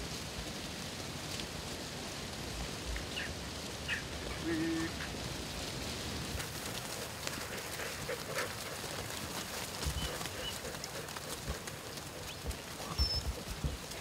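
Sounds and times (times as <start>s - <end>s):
steady hiss: 0.0s - 14.0s
small ticks: 6.4s - 14.0s
faint bird chirps: 12.8s - 13.4s.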